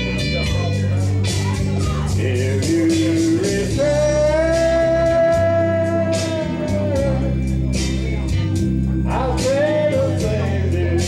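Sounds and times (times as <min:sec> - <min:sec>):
country backing track: 0:00.0 - 0:11.0
man singing into microphone: 0:02.0 - 0:08.2, 0:09.0 - 0:11.0.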